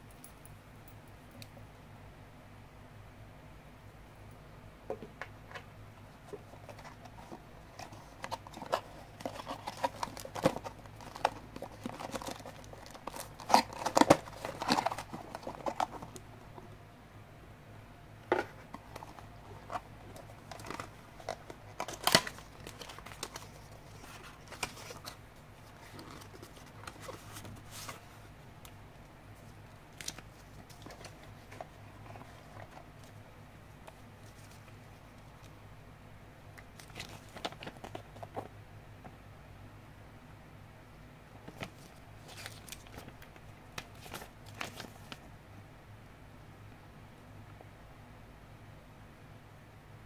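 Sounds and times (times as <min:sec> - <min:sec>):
plastic packaging crinkling: 0:06.5 - 0:16.2, 0:18.8 - 0:28.0, 0:41.5 - 0:45.2.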